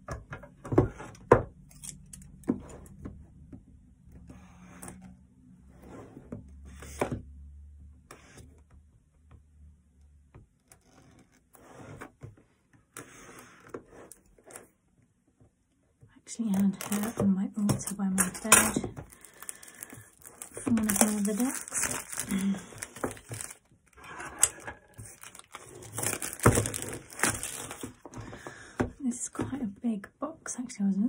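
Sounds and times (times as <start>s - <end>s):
plastic wrap rustling: 16.4s - 17.2s, 17.8s - 28.2s
scissors snipping plastic: 16.5s - 23.6s, 24.4s - 27.9s.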